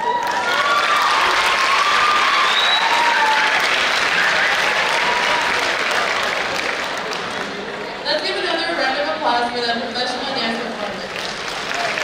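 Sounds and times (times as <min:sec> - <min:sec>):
high whoops: 0:00.0 - 0:05.6
audience applauding: 0:00.0 - 0:08.0, 0:11.0 - 0:12.0.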